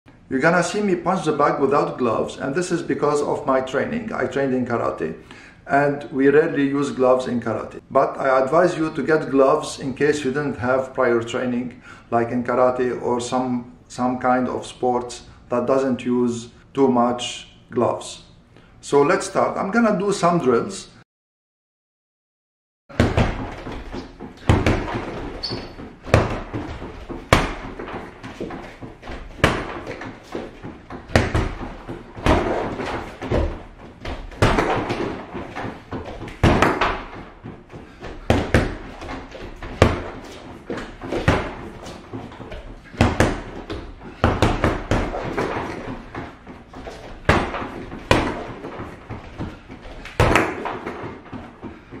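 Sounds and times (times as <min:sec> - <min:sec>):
punches thudding on punching bag: 0:22.9 - 0:51.2.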